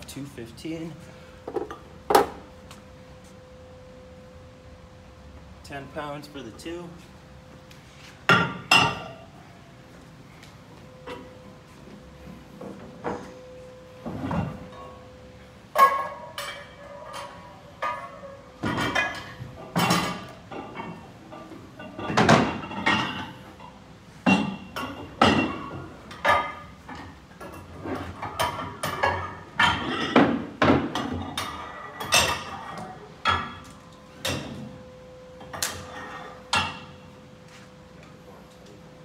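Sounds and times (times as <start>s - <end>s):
barbell plates clanking: 15.7s - 23.4s.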